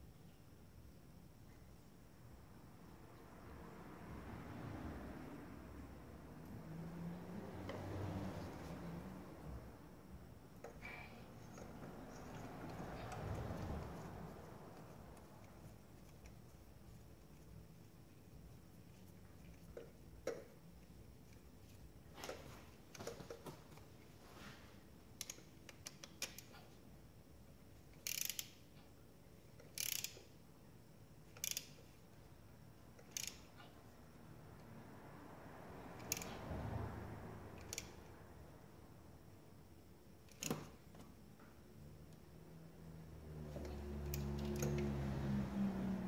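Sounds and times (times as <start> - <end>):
ratchet wrench clicking: 25.2 - 26.5, 27.9 - 28.7, 29.5 - 30.4, 31.3 - 31.8, 32.9 - 33.6, 36.0 - 36.4, 37.6 - 38.0, 44.0 - 44.9.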